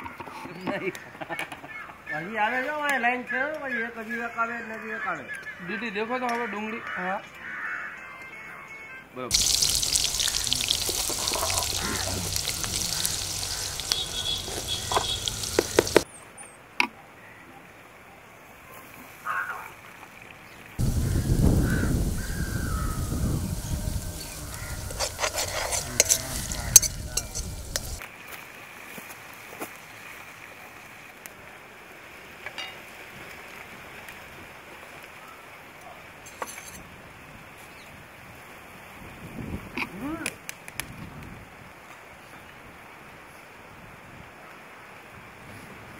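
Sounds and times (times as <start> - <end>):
quiet outdoor background: 0.0 - 38.0
onions sizzling in hot oil: 9.3 - 16.0, 20.8 - 28.0.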